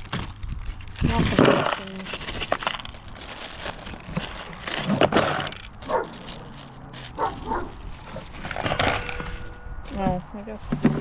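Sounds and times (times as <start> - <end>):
dog barking: 5.8 - 6.2, 7.2 - 7.8.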